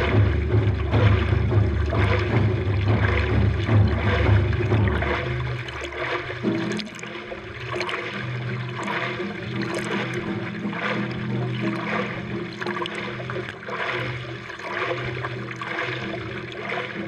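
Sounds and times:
low rumble: 0:00.0 - 0:13.5
hands splashing water: 0:00.0 - 0:17.0
water rushing along board: 0:00.0 - 0:17.0.

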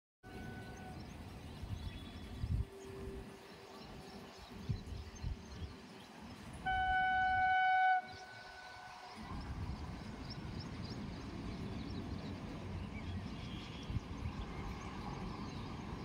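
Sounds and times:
train horn: 0:00.2 - 0:01.2, 0:06.6 - 0:09.3.

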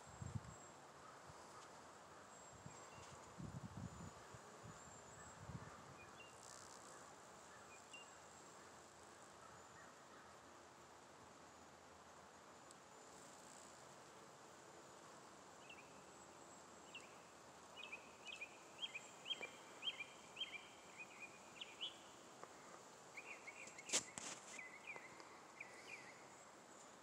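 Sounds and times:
songbird chirping: 0:15.6 - 0:26.5.

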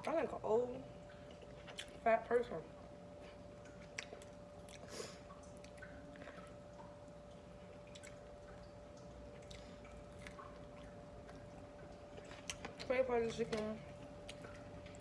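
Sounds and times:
faint steady hum: 0:00.0 - 0:15.0
chicken skin crackling while chewed: 0:01.2 - 0:02.0, 0:03.2 - 0:08.6, 0:09.3 - 0:13.0.

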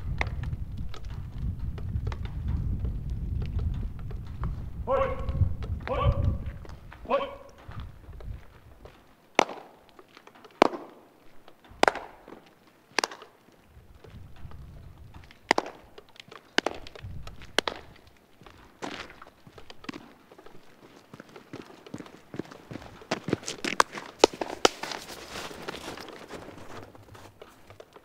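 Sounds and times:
footsteps on pavement: 0:00.0 - 0:28.0
hand claps echoing off wall: 0:09.4 - 0:09.9, 0:10.6 - 0:11.1, 0:11.8 - 0:13.3, 0:15.5 - 0:16.0.

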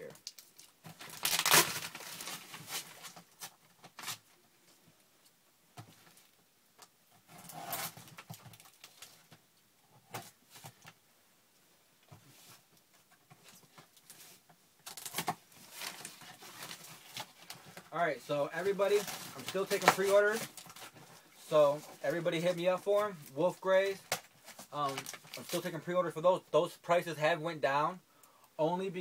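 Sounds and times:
wrapping paper tearing: 0:00.3 - 0:04.2, 0:14.8 - 0:17.6, 0:23.9 - 0:25.8.

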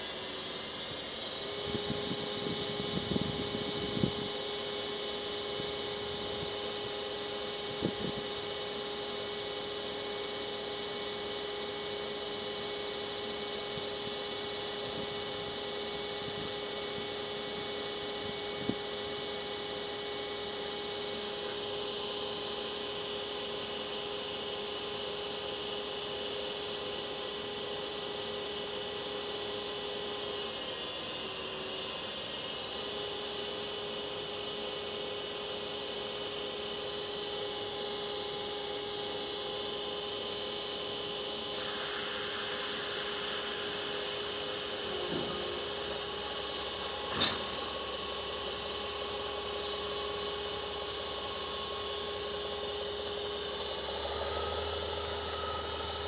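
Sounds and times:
fans whirring: 0:40.6 - 0:56.0
electrical hum: 0:41.4 - 0:56.0.

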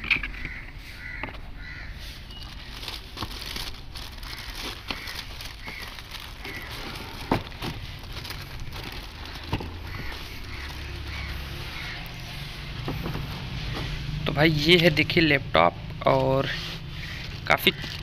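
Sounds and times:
bird calls: 0:00.0 - 0:02.9, 0:04.2 - 0:14.1, 0:16.5 - 0:18.0
plastic wrapping crinkling: 0:02.2 - 0:14.1, 0:16.1 - 0:18.0.

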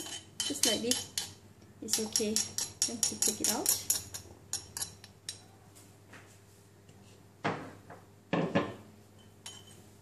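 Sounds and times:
metal spoon scraping stone mortar: 0:00.0 - 0:05.1.

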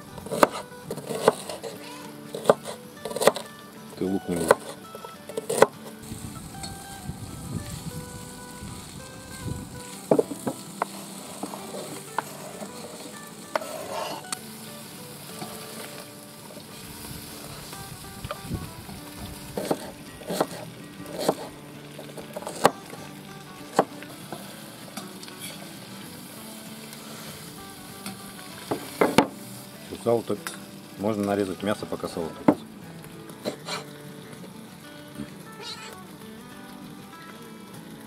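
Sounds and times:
pork fat sizzling: 0:00.0 - 0:38.0.

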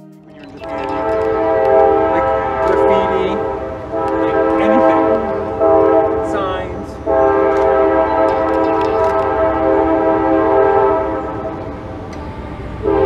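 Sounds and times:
train horn chord: 0:00.6 - 0:13.0.

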